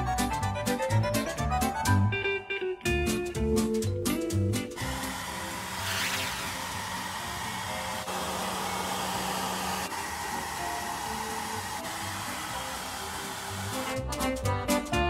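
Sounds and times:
hair dryer blowing: 4.8s - 14.1s.

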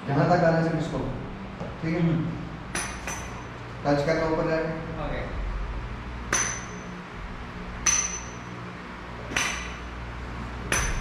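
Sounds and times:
metal dumbbells clinking: 2.7s - 3.6s, 6.3s - 7.0s, 7.8s - 10.0s, 10.7s - 11.0s.

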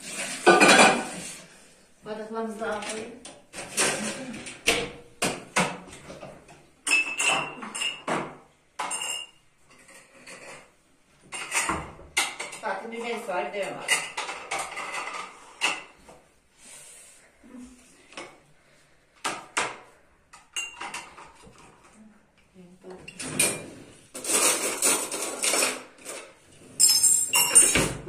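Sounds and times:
glasses and dishes clinking: 6.8s - 9.4s, 20.4s - 21.3s, 26.8s - 28.0s.

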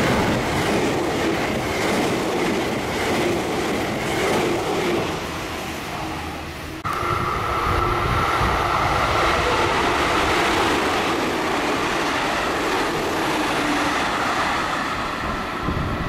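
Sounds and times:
train wheel and rail noise: 0.0s - 16.0s
high whine: 6.0s - 10.1s.

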